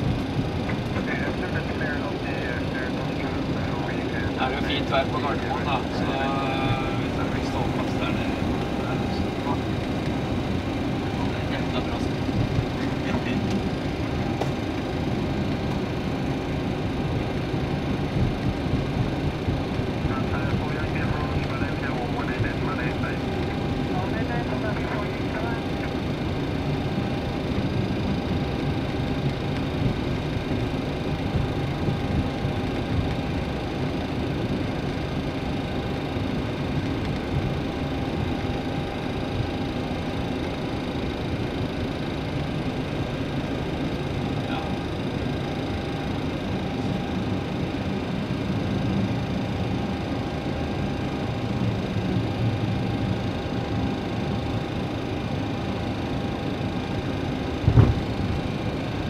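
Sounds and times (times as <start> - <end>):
engine and air-conditioning hum: 0.0 - 59.0
low rumble: 5.4 - 35.0, 57.5 - 59.0.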